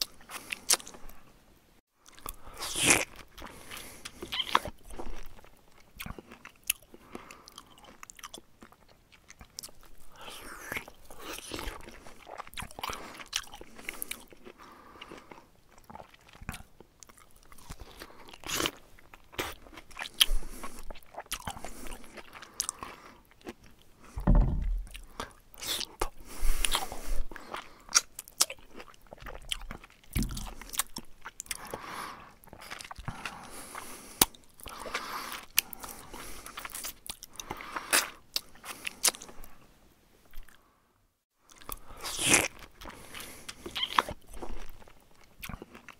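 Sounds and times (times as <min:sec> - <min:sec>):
low thumps: 0:24.2 - 0:25.0.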